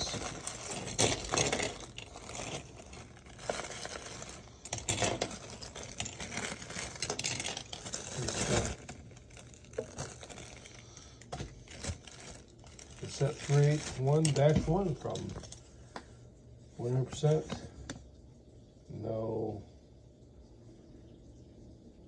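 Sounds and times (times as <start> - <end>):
plastic bag rustling: 0.0 - 15.8.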